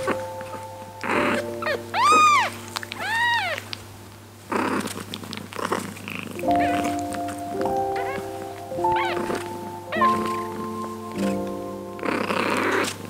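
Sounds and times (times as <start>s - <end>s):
soft background music: 0.0s - 4.5s, 6.3s - 13.0s
rustling: 0.0s - 13.0s
kitten mewing: 1.0s - 3.7s, 7.9s - 10.7s.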